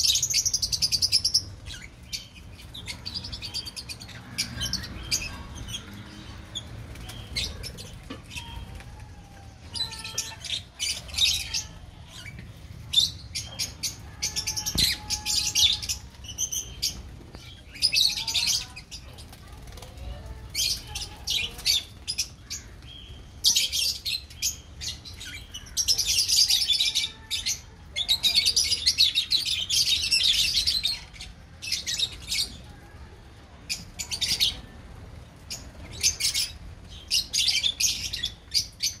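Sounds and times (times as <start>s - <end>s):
lovebirds chattering: 0.0s - 39.0s.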